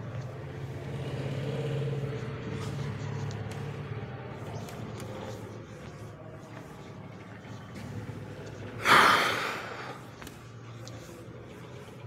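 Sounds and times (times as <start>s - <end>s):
sharp huff of breath: 8.8s - 10.0s.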